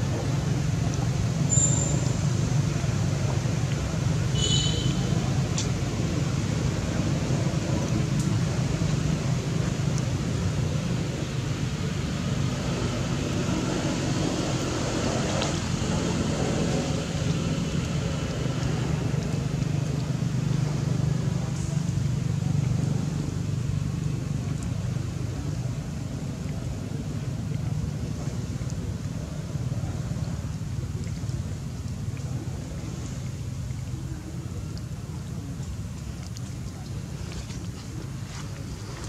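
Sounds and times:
outdoor background hiss: 0.0 - 18.3
low engine rumble: 0.0 - 39.0.

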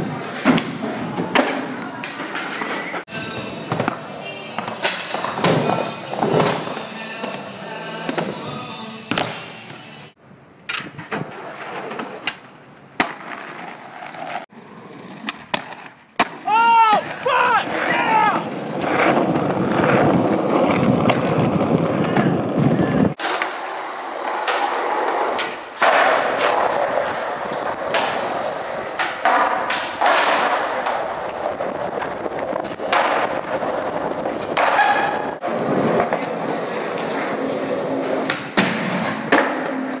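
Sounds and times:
skateboard wheels rolling on asphalt: 10.6 - 40.0
skateboard clacking on ground: 15.1 - 37.3.

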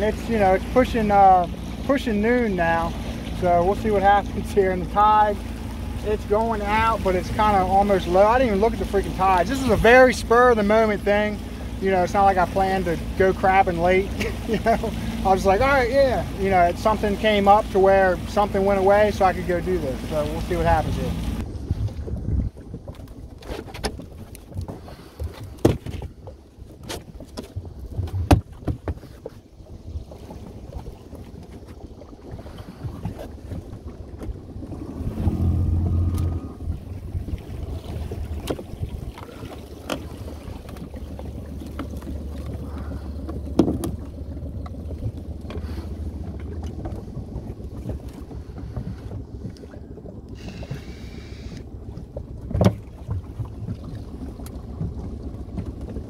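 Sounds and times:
water lapping against hull: 0.0 - 56.0
low steady drone: 34.7 - 38.4.

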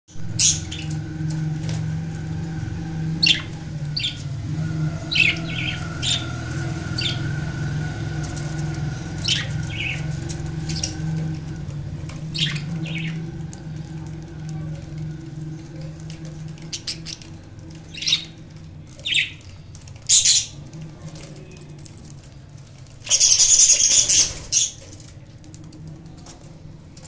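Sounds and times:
steady low hum: 0.1 - 27.0
budgerigars chirping: 0.2 - 1.0, 3.2 - 13.4, 16.7 - 20.6, 23.1 - 24.8.

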